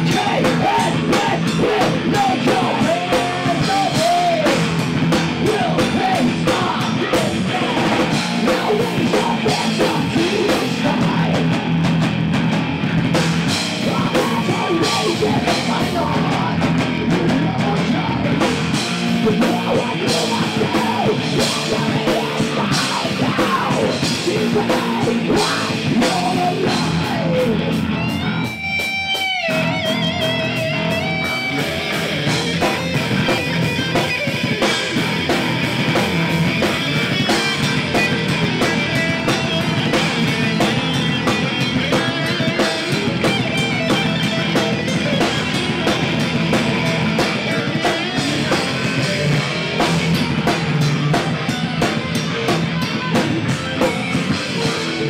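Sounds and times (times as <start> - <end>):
person singing: 0.0 - 4.7, 5.4 - 11.6, 13.7 - 28.2
heavy metal band playing: 0.0 - 55.0
lone electric guitar: 0.0 - 55.0.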